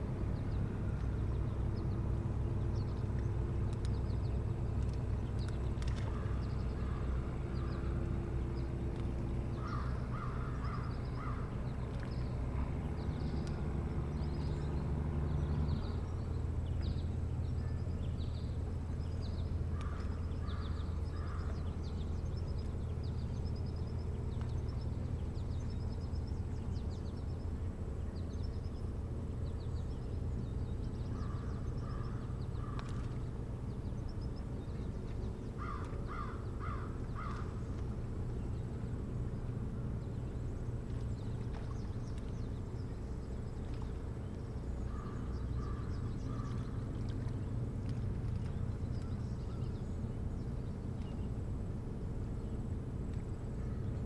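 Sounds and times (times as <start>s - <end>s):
low motor rumble: 0.0s - 54.0s
harsh crow-like bird calls: 9.6s - 11.5s, 19.8s - 21.5s, 31.1s - 33.1s, 35.6s - 37.6s, 44.9s - 46.7s.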